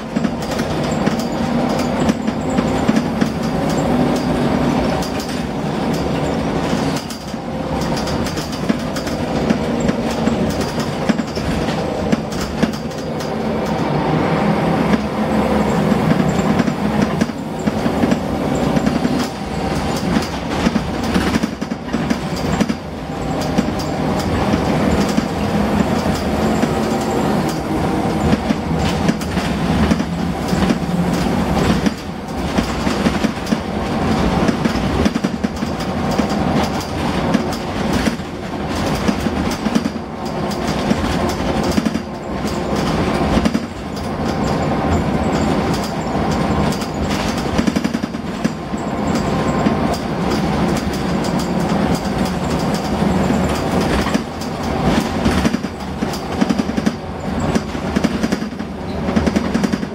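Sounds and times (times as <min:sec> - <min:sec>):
bus body rattling: 0:00.0 - 0:59.9
bus diesel engine pulling: 0:00.0 - 0:59.9.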